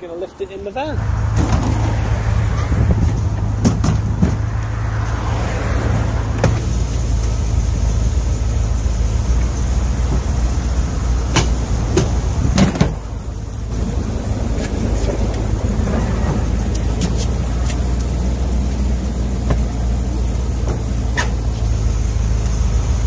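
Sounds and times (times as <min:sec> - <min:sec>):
vehicle engine idling: 0:00.0 - 0:23.0.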